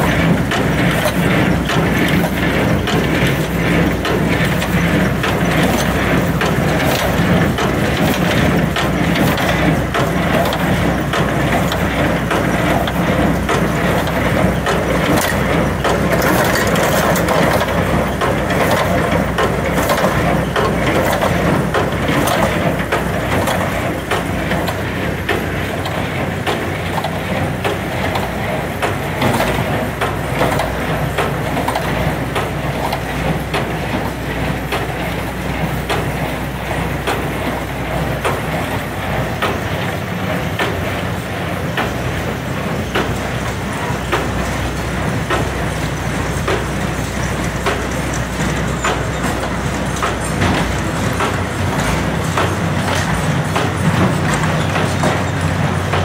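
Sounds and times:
baler mechanism clattering and knocking: 0:00.0 - 0:56.0
tractor engine humming: 0:00.0 - 0:56.0.

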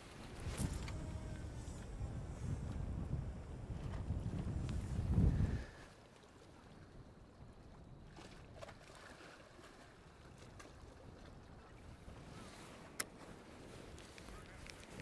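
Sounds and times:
wind rumble on microphone: 0:00.0 - 0:06.0.

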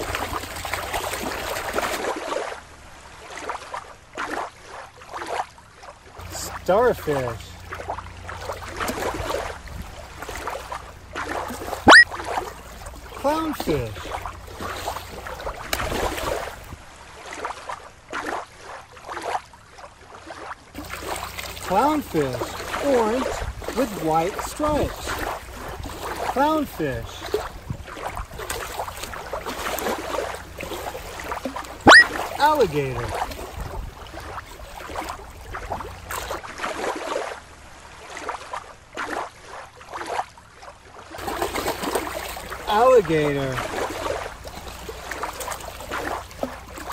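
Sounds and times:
shallow water lapping: 0:00.0 - 0:46.9
low steady rumble: 0:06.2 - 0:17.0.

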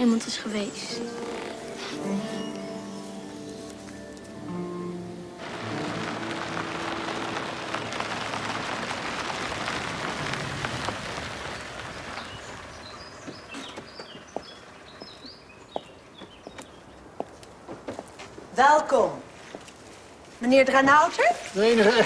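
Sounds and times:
small birds chirping: 0:11.2 - 0:17.6.

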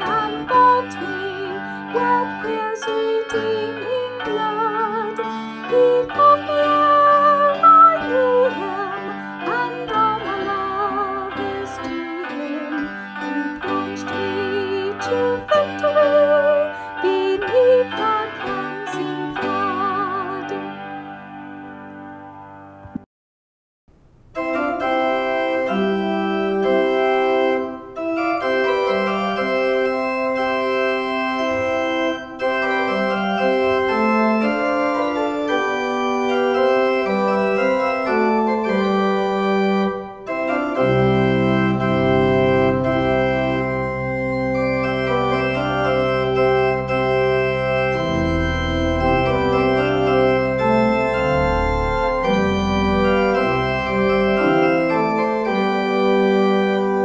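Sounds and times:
organ playing slow chords: 0:00.0 - 0:22.8, 0:24.3 - 0:57.0
deep organ pedal bass notes: 0:24.4 - 0:57.0.

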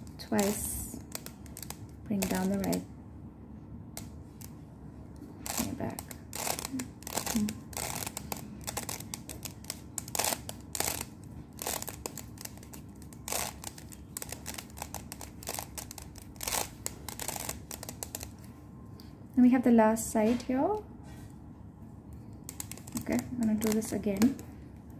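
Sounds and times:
puzzle cube clicking as turned: 0:00.1 - 0:02.8, 0:05.4 - 0:18.4, 0:22.3 - 0:24.5.

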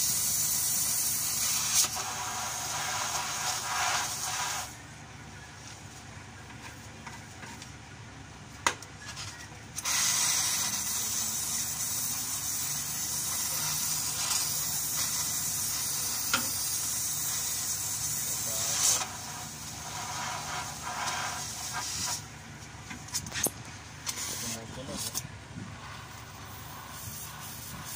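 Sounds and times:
cutting torch hissing: 0:00.0 - 0:04.8, 0:09.8 - 0:22.3, 0:24.0 - 0:27.9.

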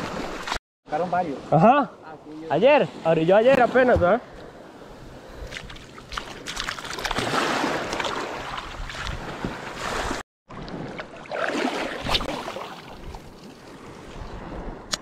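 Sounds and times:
seawater splashing around legs: 0:05.4 - 0:13.6.

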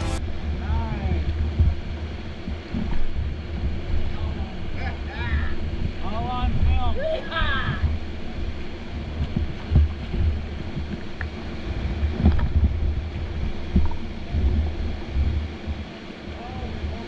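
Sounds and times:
rushing whitewater: 0:00.0 - 0:17.0
wind buffeting microphone: 0:00.0 - 0:17.0
paddle stroke thumps: 0:09.1 - 0:15.8.

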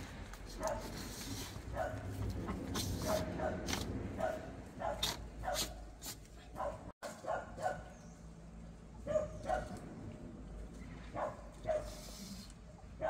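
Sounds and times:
dog barking: 0:00.6 - 0:00.9, 0:01.7 - 0:02.1, 0:03.0 - 0:05.8, 0:06.5 - 0:08.0, 0:09.0 - 0:09.8, 0:11.2 - 0:12.0.

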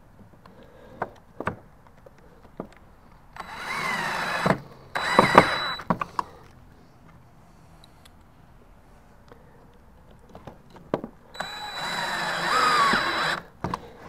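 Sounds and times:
cordless drill driving a screw: 0:03.4 - 0:05.9, 0:11.4 - 0:13.5.

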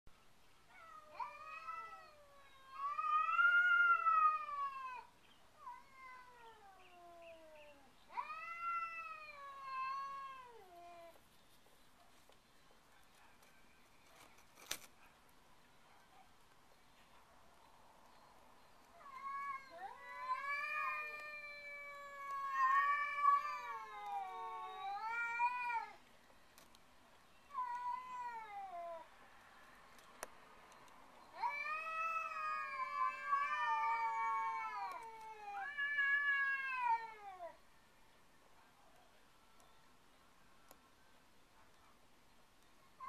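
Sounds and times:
cats yowling: 0:00.7 - 0:11.2, 0:18.9 - 0:26.0, 0:27.5 - 0:29.1, 0:31.3 - 0:37.6.

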